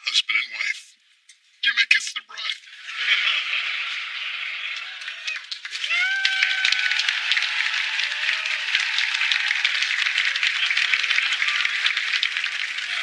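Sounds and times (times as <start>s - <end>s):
audience applauding: 2.8s - 13.0s
voices calling out: 2.8s - 13.0s.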